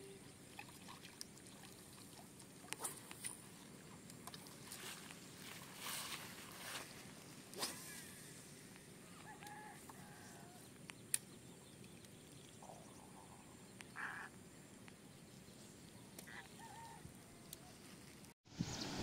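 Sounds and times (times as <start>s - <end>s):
faint bird calls: 9.0s - 14.4s, 15.8s - 17.9s.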